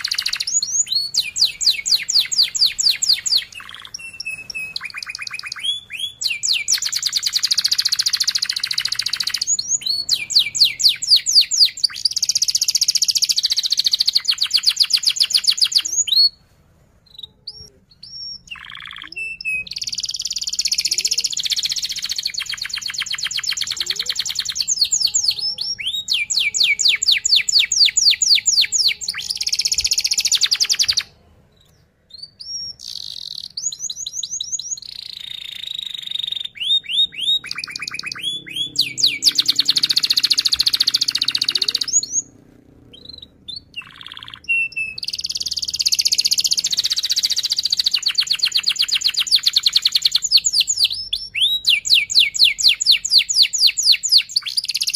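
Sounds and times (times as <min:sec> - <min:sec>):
canary singing trills: 0:00.0 - 0:16.4, 0:17.0 - 0:54.9.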